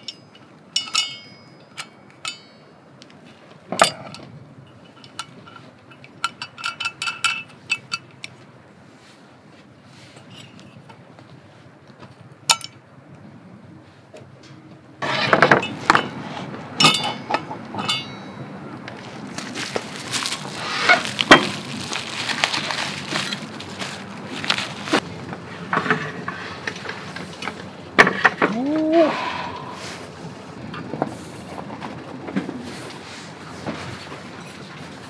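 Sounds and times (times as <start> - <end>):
metallic clatter and ring: 0.0 - 2.6, 3.8 - 8.4, 16.8 - 18.5.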